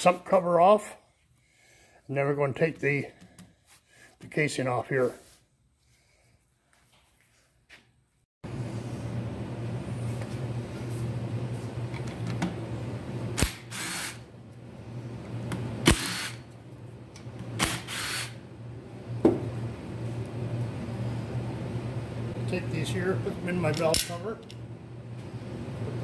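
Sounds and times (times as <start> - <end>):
steady low hum: 8.4 - 26.0.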